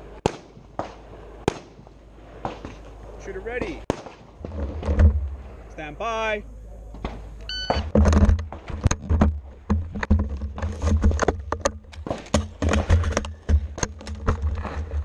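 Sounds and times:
short electronic beep: 0:07.5 - 0:07.9.

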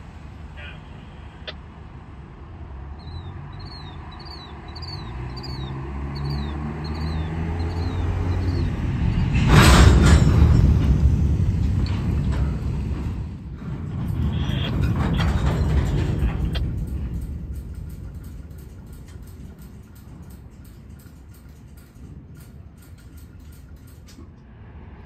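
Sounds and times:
train low rumble: 0:00.0 - 0:25.0
train cars starting to roll: 0:02.8 - 0:25.0.

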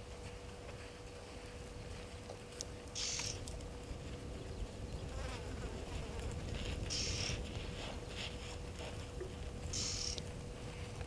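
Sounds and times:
low steady rumble: 0:00.0 - 0:11.0
insects buzzing: 0:02.8 - 0:07.6, 0:09.6 - 0:10.4.

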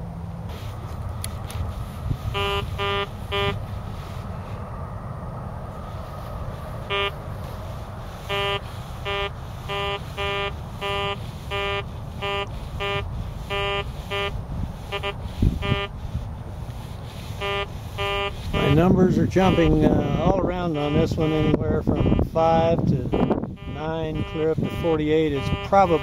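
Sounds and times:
metal detector beeps: 0:02.3 - 0:03.6, 0:06.9 - 0:07.2, 0:08.2 - 0:16.0, 0:17.3 - 0:22.2, 0:23.1 - 0:26.0.

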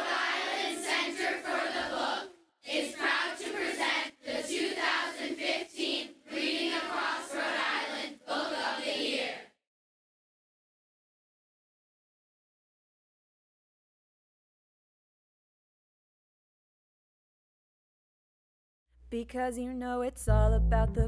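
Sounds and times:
group of voices chanting: 0:00.0 - 0:09.6.

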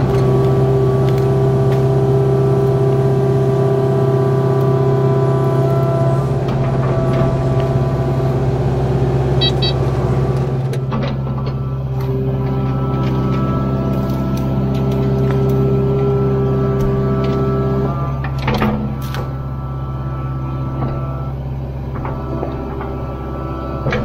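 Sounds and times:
excavator diesel engine running: 0:00.0 - 0:24.0
short high beeps: 0:09.4 - 0:09.8.

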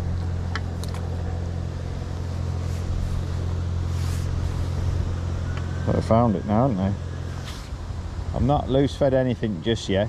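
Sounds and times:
low mechanical hum: 0:00.0 - 0:10.0
brief rustle: 0:02.6 - 0:05.0, 0:07.4 - 0:07.7.

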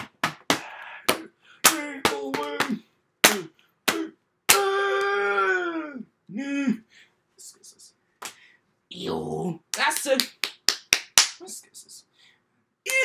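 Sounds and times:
person making smacking sounds: 0:00.0 - 0:05.2, 0:08.2 - 0:08.4, 0:09.7 - 0:11.5.

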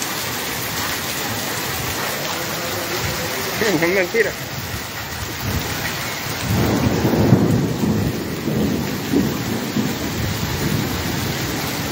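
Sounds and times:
rain and hail on paving: 0:00.0 - 0:11.9.

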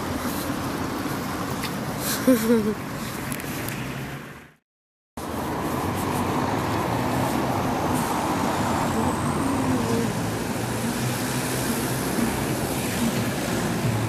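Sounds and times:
wind rushing through trees: 0:05.2 - 0:14.0.

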